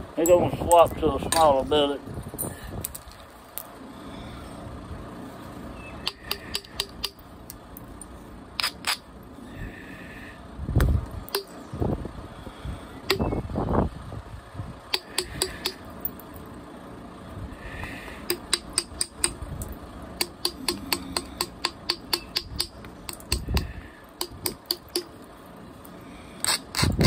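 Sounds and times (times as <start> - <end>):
copper billet tapping stone: 18.2 - 19.4, 20.2 - 25.1.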